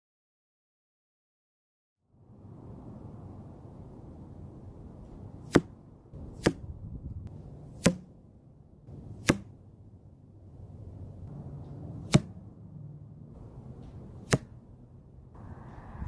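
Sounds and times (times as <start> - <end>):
arrows striking foam target: 5.4 - 6.7, 7.8 - 8.2, 8.9 - 9.6, 12.0 - 12.4, 13.8 - 14.6.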